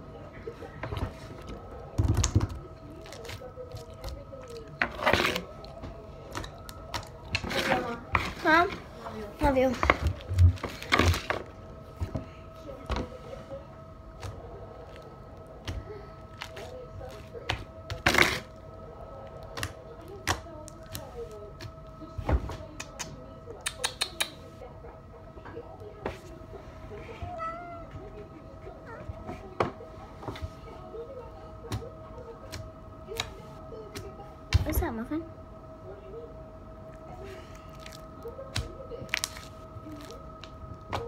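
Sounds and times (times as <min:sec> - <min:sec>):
faint steady hum: 0:00.0 - 0:41.0
slime squelching: 0:01.0 - 0:22.2, 0:36.8 - 0:41.0.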